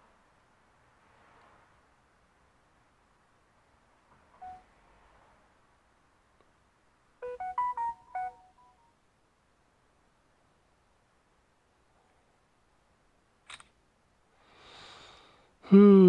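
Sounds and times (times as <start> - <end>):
electronic beeping melody: 4.4 - 4.6, 7.2 - 8.8
faint beep: 4.4 - 4.7, 7.2 - 8.8.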